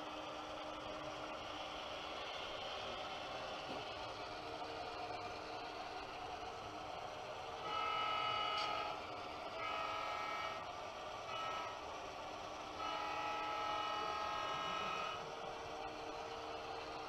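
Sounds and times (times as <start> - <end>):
model locomotive horn blasts: 7.6 - 10.7, 11.3 - 11.8, 12.8 - 15.2.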